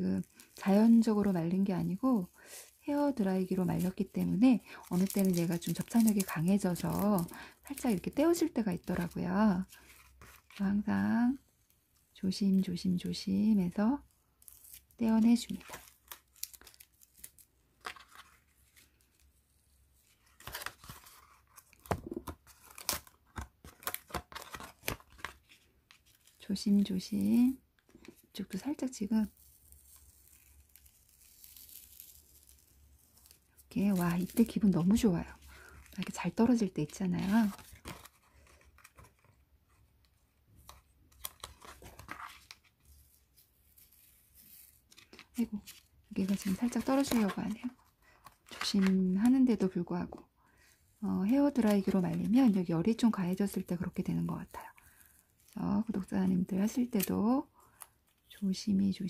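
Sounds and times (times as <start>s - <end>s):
tape peeling off paper: 29.3s - 34.6s.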